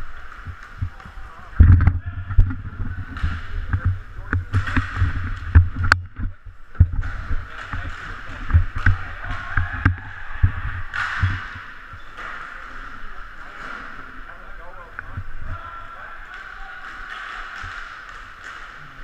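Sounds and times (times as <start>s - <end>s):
echoing rink hall din: 0.0s - 19.0s
thumps on rink boards: 0.2s - 14.2s, 16.2s - 19.0s
hockey stick clacks: 6.8s - 10.0s, 10.9s - 12.8s, 16.2s - 19.0s.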